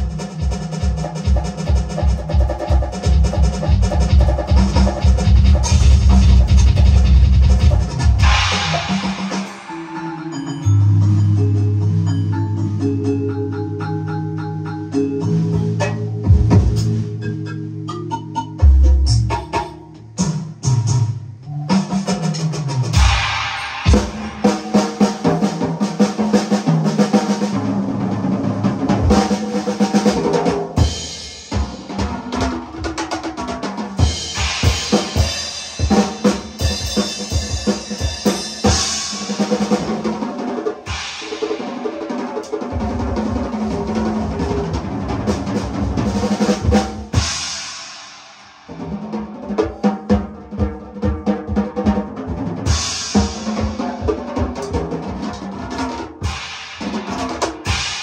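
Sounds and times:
drum kit beat: 0.0s - 58.0s
sustained pitched instruments: 5.6s - 20.2s.

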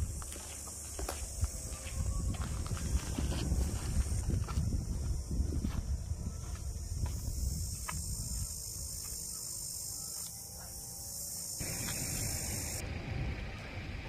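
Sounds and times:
wind rumbling on microphone: 1.1s - 9.1s, 11.6s - 14.0s
steady high hiss: 7.2s - 12.8s.

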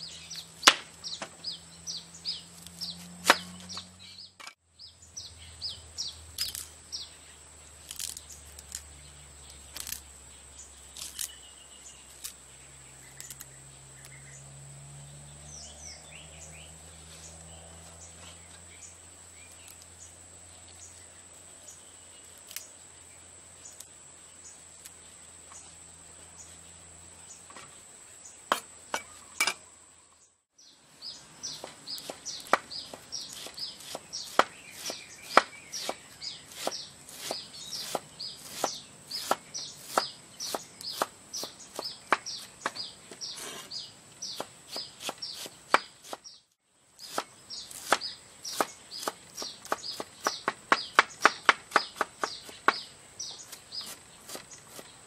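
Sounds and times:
birds chirping: 0.0s - 55.0s
knife chopping on wooden board: 3.2s - 3.8s, 28.5s - 29.6s, 31.5s - 46.2s, 47.0s - 52.9s.

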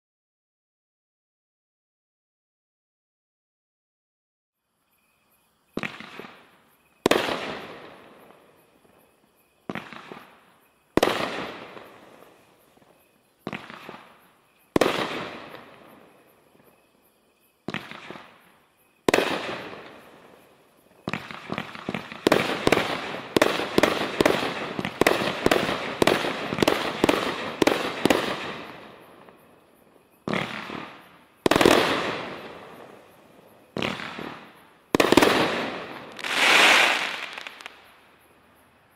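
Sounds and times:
firework bangs: 13.4s - 15.8s, 21.0s - 29.0s, 30.2s - 37.9s
rapid volley of firework shots: 33.7s - 37.6s.

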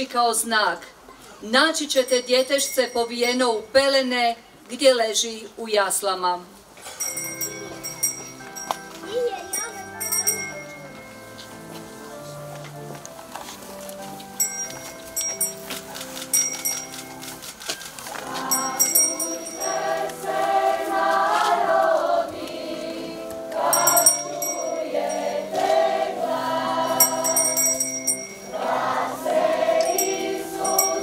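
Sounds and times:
held instrumental chords: 7.0s - 31.0s
choir singing a hymn: 18.1s - 31.0s.

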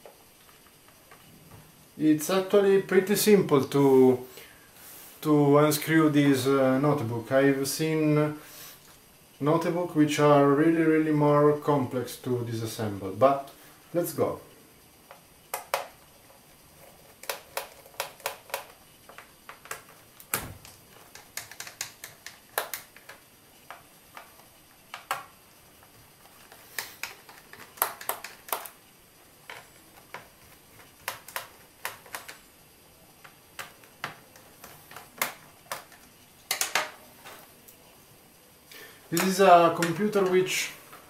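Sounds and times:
screwdriver clicking on plastic: 21.0s - 25.2s, 26.8s - 28.7s, 29.5s - 32.4s.

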